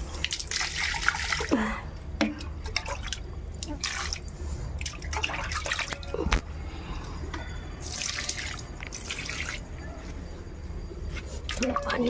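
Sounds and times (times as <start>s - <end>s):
water dripping: 0.0s - 6.2s.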